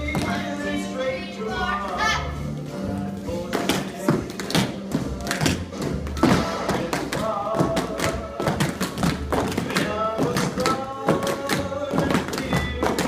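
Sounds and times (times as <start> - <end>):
tap shoes tapping on floor: 0.0 - 0.5, 3.4 - 13.0
recorded music: 0.0 - 13.0.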